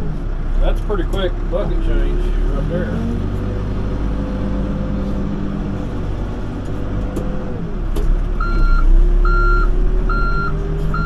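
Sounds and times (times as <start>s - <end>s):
excavator diesel engine: 0.0s - 11.0s
backup alarm beeping: 8.4s - 11.0s.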